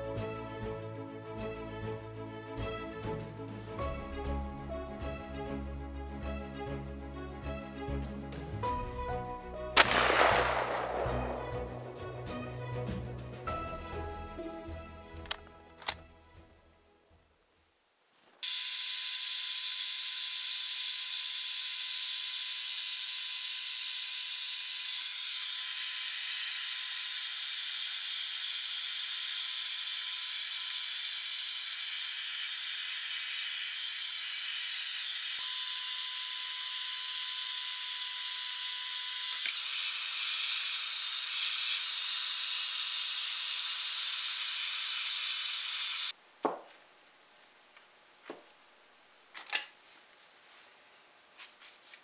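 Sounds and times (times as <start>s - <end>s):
heat gun blowing air: 22.8s - 46.1s.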